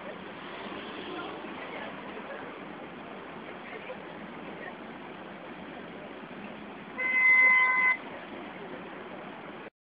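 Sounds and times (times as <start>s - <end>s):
horn toot: 7.0s - 8.0s.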